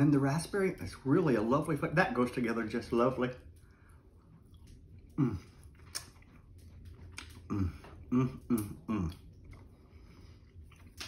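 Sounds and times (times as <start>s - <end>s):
man chewing: 3.6s - 11.0s
mouth clicks: 7.2s - 9.6s.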